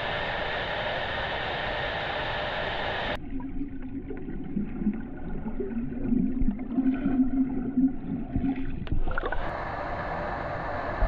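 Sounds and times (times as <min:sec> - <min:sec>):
muffled underwater drone: 0:00.0 - 0:11.0
underwater bubbling: 0:03.1 - 0:10.1.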